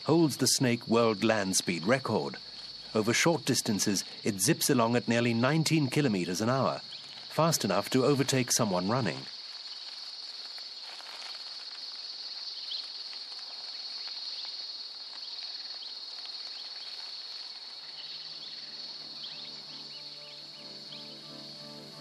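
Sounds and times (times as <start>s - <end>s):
insect chorus: 0.0s - 22.0s
soft music with held notes: 18.3s - 22.0s.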